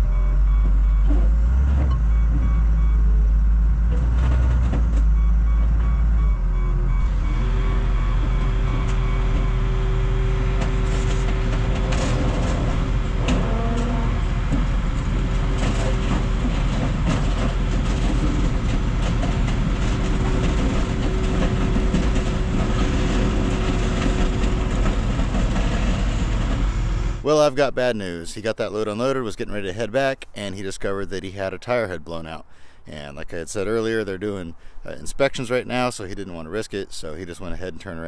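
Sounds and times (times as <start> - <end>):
diesel engine running: 0.0 - 27.4.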